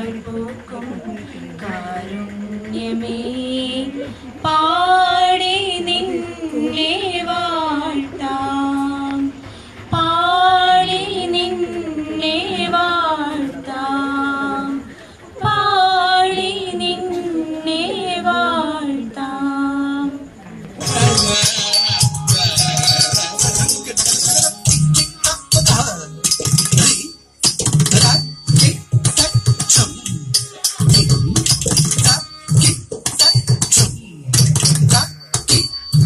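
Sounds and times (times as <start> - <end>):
high voice singing a melody: 20.8 - 27.1, 27.9 - 35.7
shaker rattle: 20.8 - 33.8.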